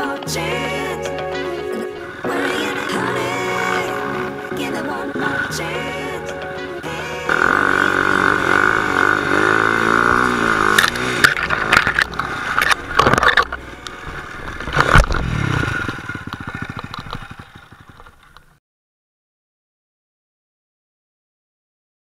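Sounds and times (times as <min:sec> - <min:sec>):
motorcycle engine revving: 0:06.8 - 0:18.6
motorcycle crashing into brush: 0:14.5 - 0:18.4.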